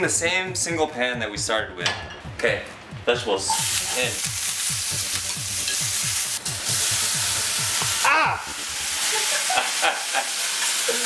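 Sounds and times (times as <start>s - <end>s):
vegetables sizzling in frying pan: 3.5s - 11.0s.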